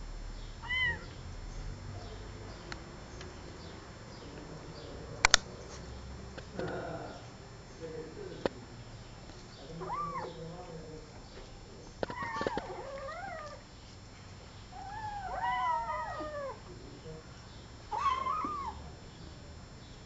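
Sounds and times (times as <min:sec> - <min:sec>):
kittens meowing: 0:00.6 - 0:01.2, 0:09.6 - 0:10.6, 0:12.0 - 0:13.6, 0:14.7 - 0:16.7, 0:17.9 - 0:18.9.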